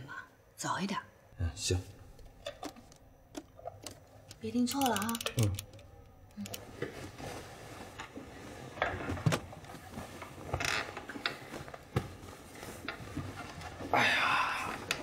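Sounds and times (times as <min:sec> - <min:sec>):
alarm clock ratcheting clicks: 0:03.4 - 0:05.9
quilts rustling: 0:06.6 - 0:15.0.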